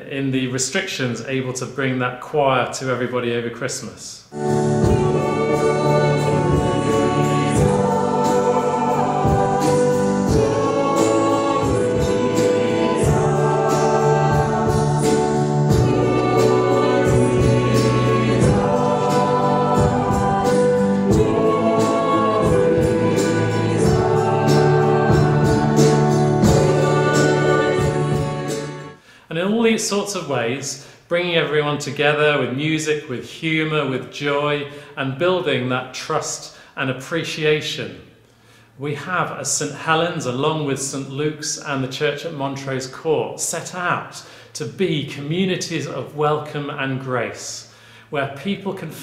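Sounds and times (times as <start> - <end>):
choir singing a carol: 4.3 - 29.0.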